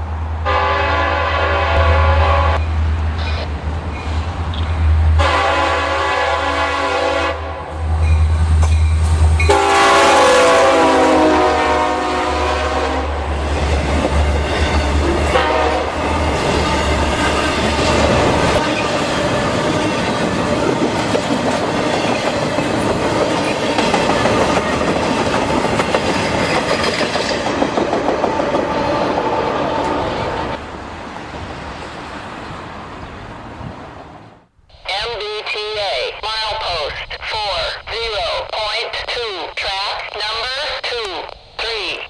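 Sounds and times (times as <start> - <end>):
locomotive horn blast: 0.4 - 2.6, 5.2 - 7.8, 9.5 - 13.2, 15.3 - 16.0.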